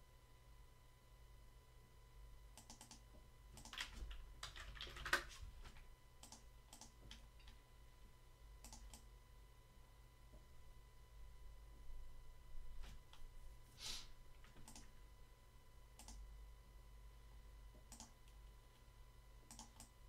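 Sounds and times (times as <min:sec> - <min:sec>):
computer keyboard typing: 0:02.6 - 0:03.0, 0:03.6 - 0:05.4, 0:06.2 - 0:07.6, 0:08.6 - 0:09.1, 0:14.4 - 0:14.9, 0:16.0 - 0:16.2, 0:17.8 - 0:18.4, 0:19.5 - 0:20.0.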